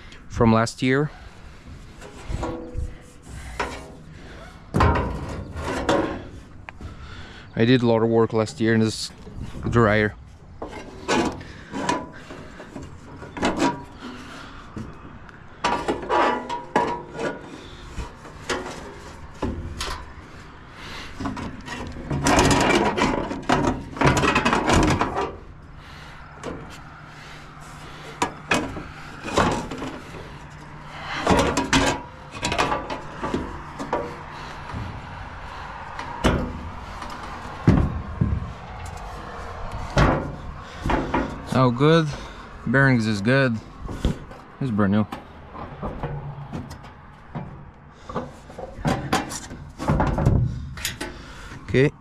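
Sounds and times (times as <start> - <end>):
rubbing on metal: 1.1 - 6.6
hands clunking on metal housing: 2.0 - 7.0, 10.6 - 20.4, 21.1 - 25.6, 27.6 - 42.5, 43.8 - 51.6.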